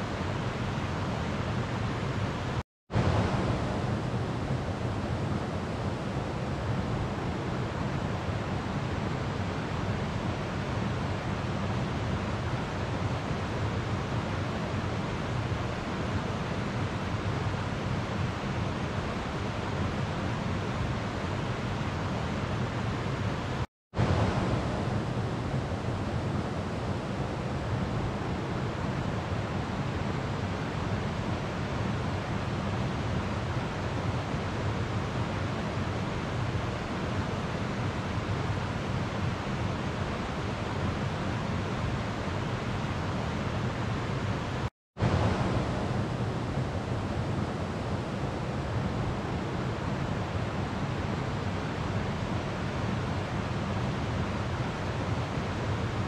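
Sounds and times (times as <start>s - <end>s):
river water rushing: 24.0s - 56.0s.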